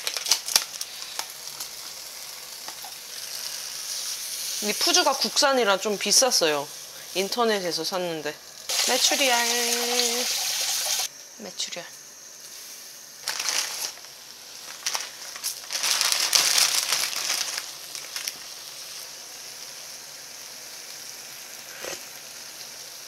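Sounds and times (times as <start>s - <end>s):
noodle packets crinkling: 0.0s - 3.5s, 13.2s - 18.9s
broth simmering: 0.7s - 11.1s.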